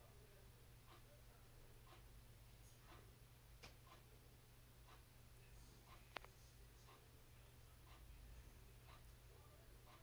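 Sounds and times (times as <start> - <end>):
steady low hum: 0.0 - 10.0
soft ticking: 0.8 - 1.2, 1.8 - 2.1, 2.7 - 4.2, 4.8 - 10.0.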